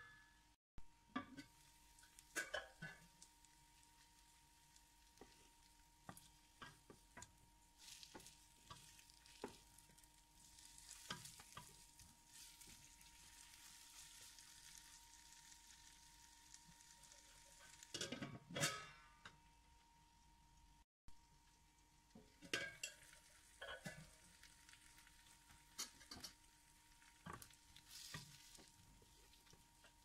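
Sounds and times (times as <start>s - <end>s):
chicken sizzling in oil: 1.4s - 18.2s, 21.3s - 30.0s
wooden spatula taps and scrapes: 5.2s - 10.0s, 10.8s - 12.8s, 25.5s - 26.4s, 27.2s - 30.0s.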